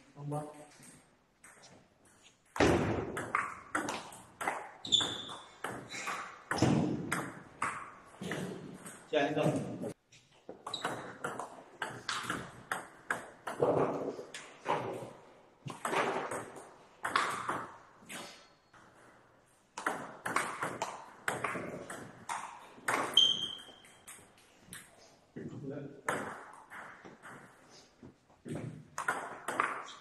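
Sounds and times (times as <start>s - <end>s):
ping pong ball hitting bats: 0.7s - 25.0s, 26.0s - 30.0s
ball bouncing on table: 2.5s - 9.6s, 10.7s - 15.1s, 15.7s - 17.7s, 19.8s - 24.2s, 28.5s - 30.0s.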